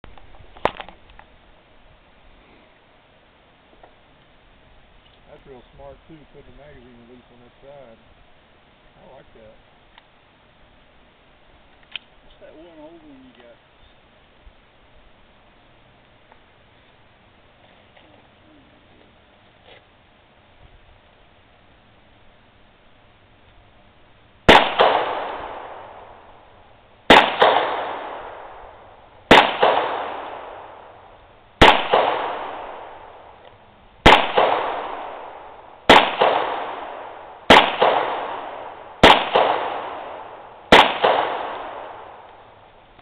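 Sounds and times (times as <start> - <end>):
pistol shots echoing: 24.5 - 26.4, 27.1 - 33.4, 34.0 - 42.5.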